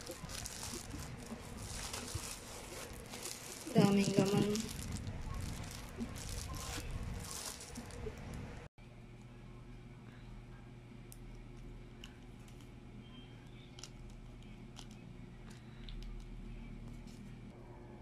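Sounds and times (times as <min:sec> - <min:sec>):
paper sachet crinkling: 0:00.0 - 0:08.3.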